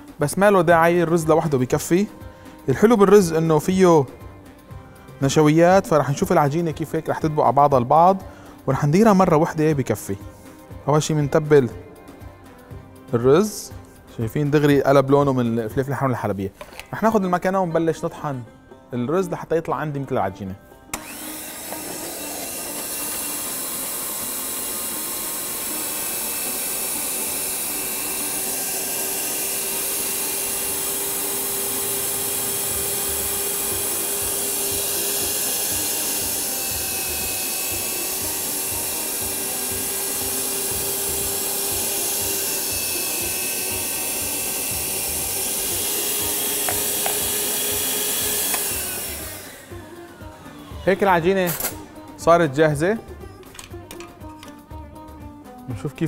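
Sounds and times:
electric meat grinder whining: 20.9 - 51.9.

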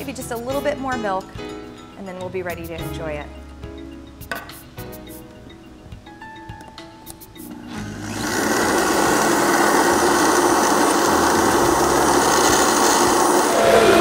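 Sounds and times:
blender motor running: 7.6 - 14.0.

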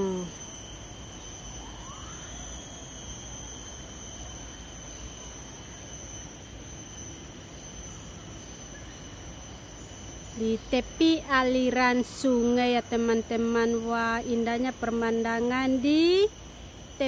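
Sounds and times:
insect whine: 0.0 - 17.0.

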